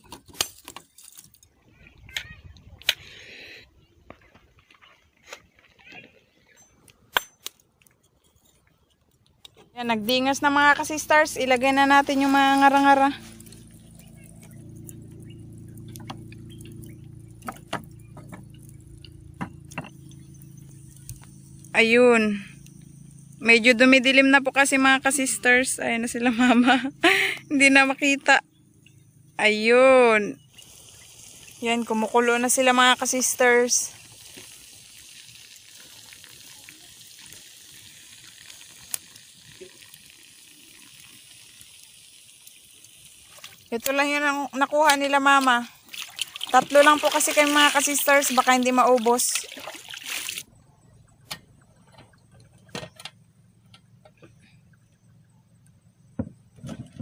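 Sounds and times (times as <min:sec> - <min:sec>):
small crackles: 0:00.0 - 0:03.2, 0:04.0 - 0:21.8, 0:30.5 - 0:47.4
steady low hum: 0:09.7 - 0:36.9, 0:42.4 - 0:57.0
juices sizzling: 0:09.8 - 0:50.5.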